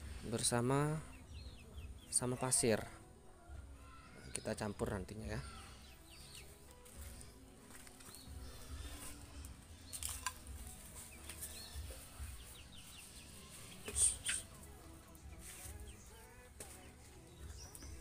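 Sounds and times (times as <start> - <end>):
dry husks rustling: 6.1 - 18.0.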